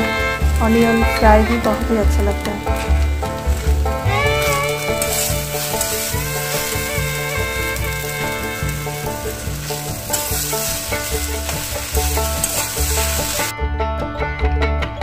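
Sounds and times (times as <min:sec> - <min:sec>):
vegetables sizzling in oil: 0:00.0 - 0:13.5
spatula stirring: 0:02.4 - 0:13.5.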